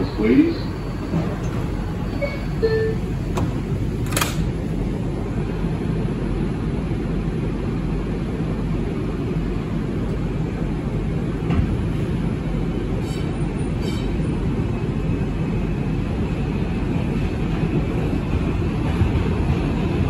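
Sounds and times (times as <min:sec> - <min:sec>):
subway train rumble: 0:00.0 - 0:20.0.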